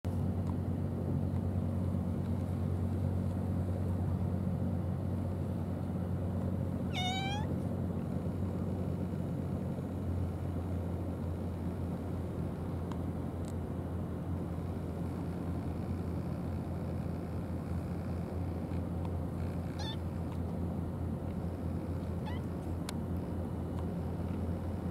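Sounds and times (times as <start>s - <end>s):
steady low rumble: 0.1s - 24.9s
cat meowing: 6.9s - 7.5s, 19.7s - 20.0s, 22.2s - 22.6s.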